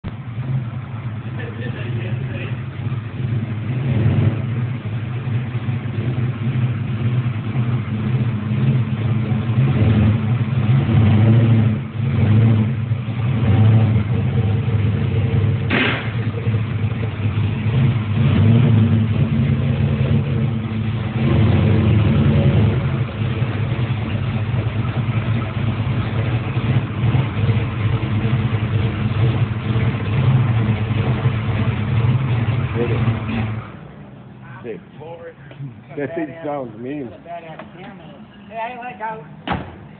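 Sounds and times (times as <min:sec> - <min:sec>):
car engine running: 0:00.0 - 0:38.2
short sharp sound: 0:15.7 - 0:16.3.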